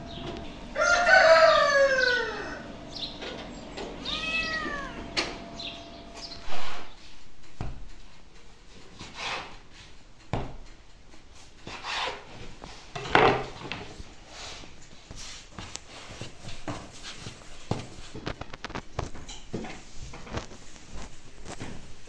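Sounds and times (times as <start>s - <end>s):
cat meowing: 4.0s - 5.2s
hands rubbing dough: 14.3s - 18.9s.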